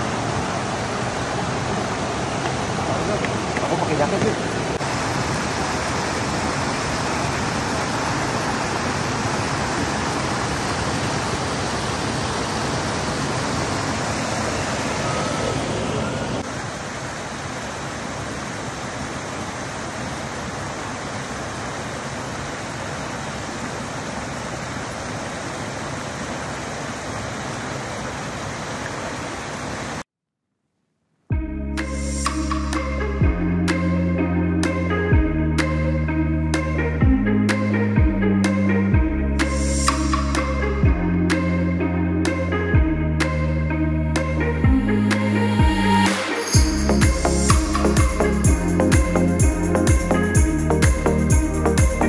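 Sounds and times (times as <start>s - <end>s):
shallow river rushing: 0.0s - 30.0s.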